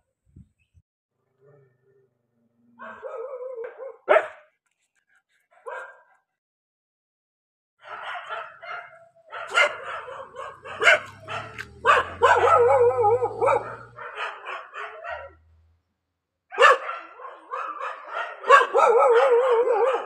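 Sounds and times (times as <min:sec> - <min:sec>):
dog barking: 0:02.8 - 0:04.6, 0:05.5 - 0:06.3, 0:07.8 - 0:15.6, 0:16.5 - 0:20.0.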